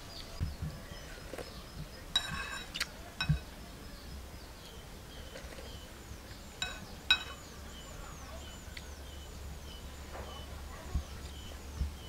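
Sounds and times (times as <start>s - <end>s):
faint bird chirps: 0.0s - 12.0s
metal spoon clinking ceramic bowl: 2.1s - 3.4s, 6.6s - 7.5s.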